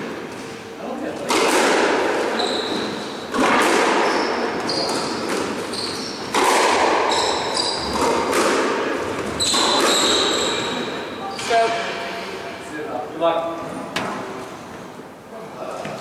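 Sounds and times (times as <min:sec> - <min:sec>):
squash ball hits echoing: 0:01.2 - 0:12.0
shoes squeaking on wooden floor: 0:02.2 - 0:03.3, 0:04.0 - 0:06.4, 0:07.0 - 0:08.4, 0:09.0 - 0:11.9.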